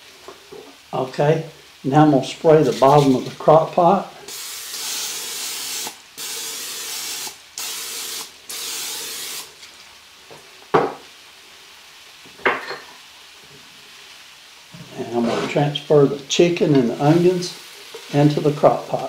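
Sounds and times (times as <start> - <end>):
aerosol spray hissing: 4.2 - 9.6.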